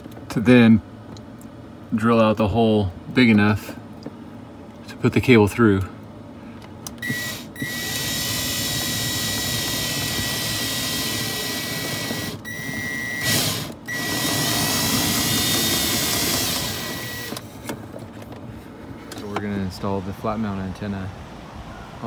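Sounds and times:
cordless drill whining: 7.0s - 17.4s.

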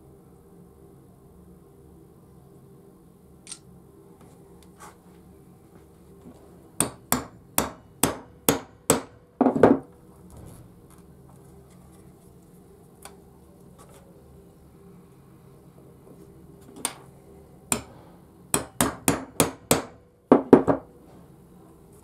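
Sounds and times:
hammer striking workbench: 6.8s - 9.8s, 17.7s - 20.9s.

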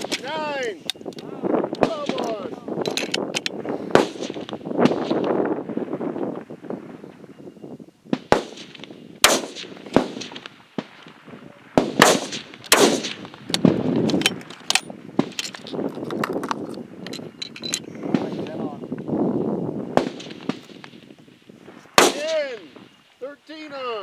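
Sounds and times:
rifle shots with echo: 1.8s - 2.4s, 3.9s - 5.4s, 8.2s - 13.8s, 19.9s - 21.0s, 22.0s - 22.8s.

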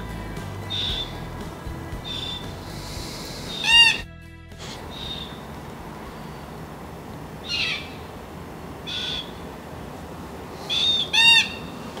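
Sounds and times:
background hiss: 0.0s - 4.0s, 4.6s - 12.0s
bird calling: 2.0s - 5.5s, 7.4s - 9.6s, 10.5s - 12.0s.

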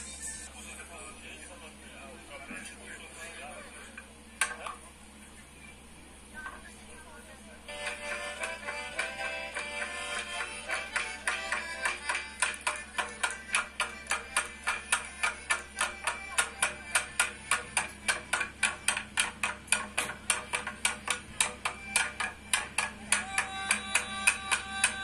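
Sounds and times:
faint music: 0.0s - 25.0s
sharp percussive beats: 7.7s - 25.0s.

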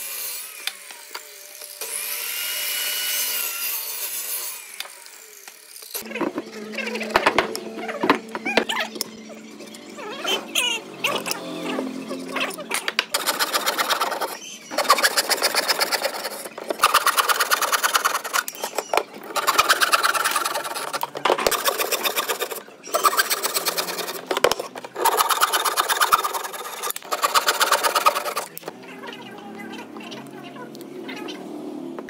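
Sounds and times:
electric jigsaw cutting wood: 0.0s - 8.2s, 12.9s - 28.7s.

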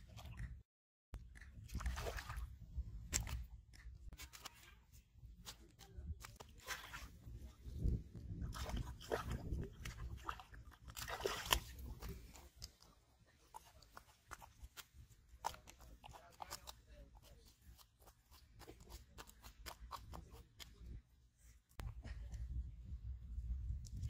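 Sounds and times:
fish flopping on dry mud: 7.8s - 12.9s
fish splashing in water: 8.5s - 12.0s.

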